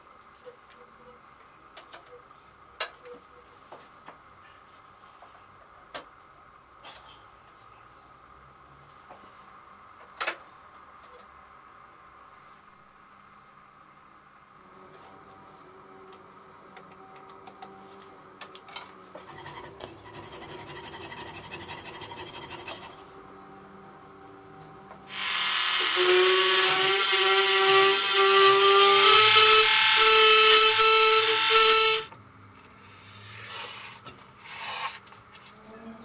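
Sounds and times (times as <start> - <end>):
electric power tool whining: 25.1 - 32.1.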